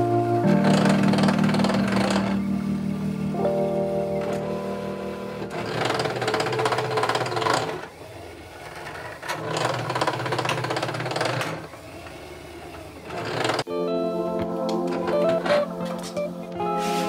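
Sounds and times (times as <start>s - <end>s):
small motorised machine buzzing: 0.4s - 3.4s, 5.3s - 13.7s.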